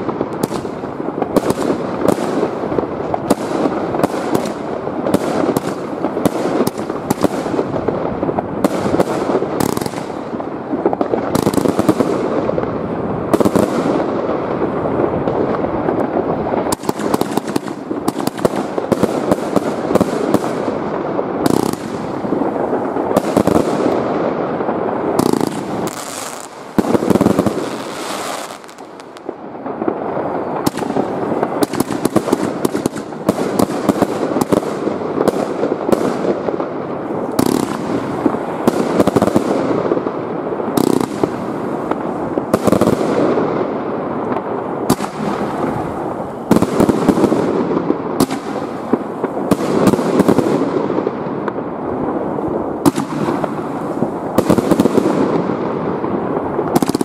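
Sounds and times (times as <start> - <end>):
fireworks bangs: 0.0 - 57.0
fireworks crackling: 0.0 - 57.0.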